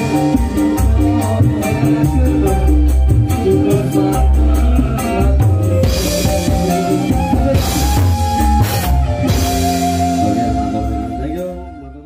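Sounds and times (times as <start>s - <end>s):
deep bass line: 0.0s - 12.0s
loud live band music: 0.0s - 12.0s
sustained keyboard melody: 0.0s - 12.0s.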